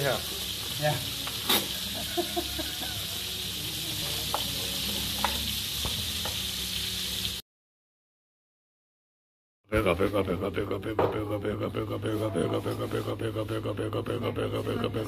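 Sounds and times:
burger patties sizzling: 0:00.0 - 0:07.4.

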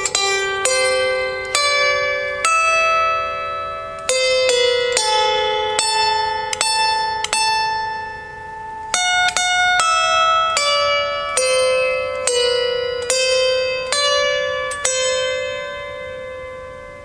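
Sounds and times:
slow harp melody: 0:00.0 - 0:17.0.

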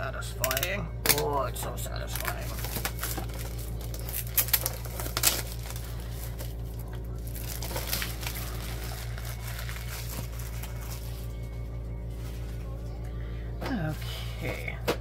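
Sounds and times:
plastic shrink-wrap crinkling: 0:02.1 - 0:12.8.

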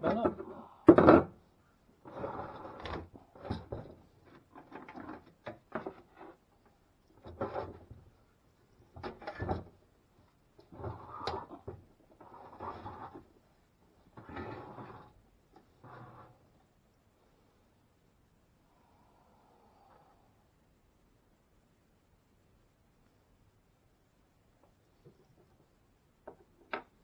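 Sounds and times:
metal parts scraping and knocking: 0:02.0 - 0:06.4.

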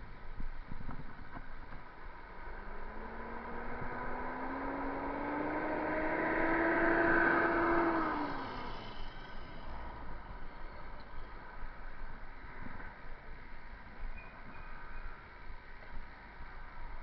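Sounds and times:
vehicle passing by: 0:02.4 - 0:10.3.

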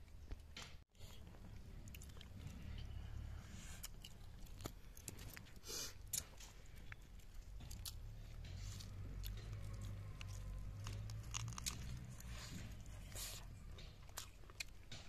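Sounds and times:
person chewing food: 0:01.0 - 0:15.0
faint low rumble: 0:01.1 - 0:05.6.

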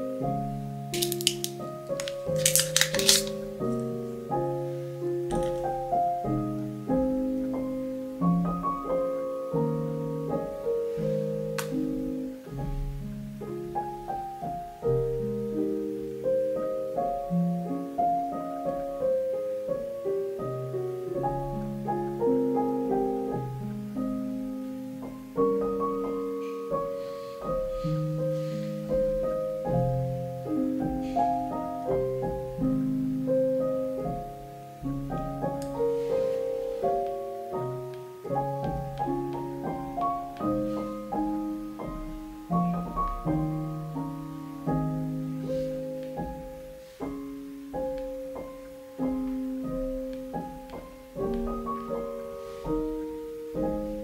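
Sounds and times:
gentle piano music: 0:00.0 - 0:54.0.

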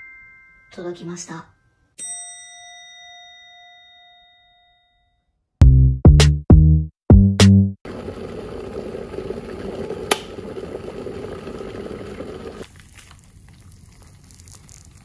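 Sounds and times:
electric kettle rumbling: 0:07.9 - 0:12.6
hot water pouring: 0:07.9 - 0:15.0.

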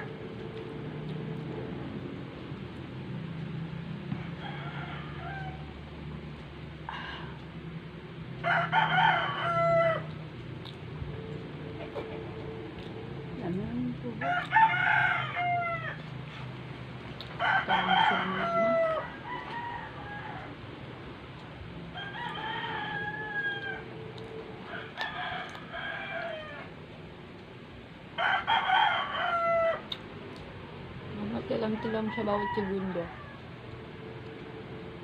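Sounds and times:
roosters crowing: 0:04.0 - 0:06.0, 0:08.4 - 0:10.4, 0:14.2 - 0:16.6, 0:17.3 - 0:21.2, 0:21.8 - 0:27.0, 0:28.0 - 0:30.0, 0:31.6 - 0:34.2.

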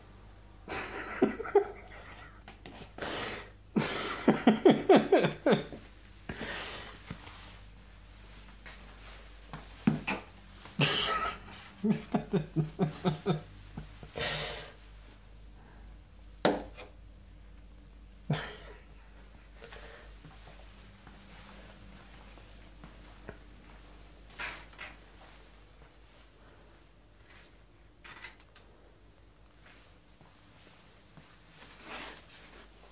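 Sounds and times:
person's stifled laughter: 0:00.7 - 0:02.6, 0:03.8 - 0:05.9, 0:10.7 - 0:14.6, 0:18.3 - 0:19.9.

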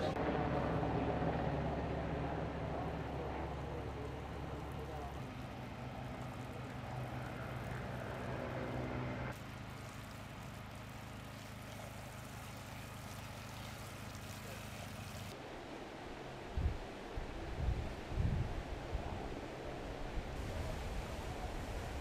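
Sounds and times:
low mechanical hum: 0:00.0 - 0:22.0
hose water splashing: 0:03.4 - 0:15.4.

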